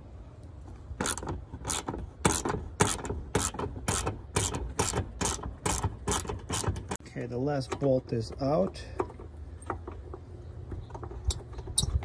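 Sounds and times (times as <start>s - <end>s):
ratchet wrench clicking: 1.0s - 7.0s.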